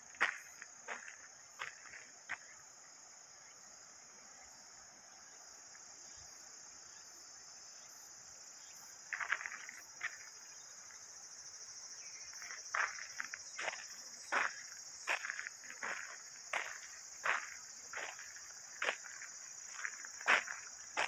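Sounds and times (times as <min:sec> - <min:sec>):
crunching footsteps: 0:00.0 - 0:02.5, 0:09.1 - 0:10.3, 0:12.3 - 0:21.0
high-pitched insect chorus: 0:00.0 - 0:21.0.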